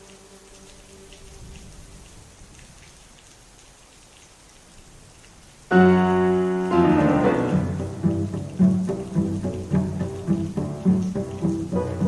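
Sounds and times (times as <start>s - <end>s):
music: 0.0s - 2.0s, 5.7s - 12.0s
steady rain falling: 0.0s - 12.0s.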